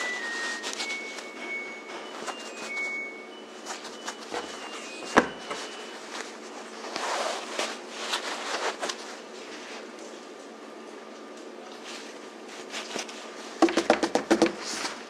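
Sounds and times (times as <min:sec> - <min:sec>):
oven mitts rustling: 0:00.0 - 0:10.4.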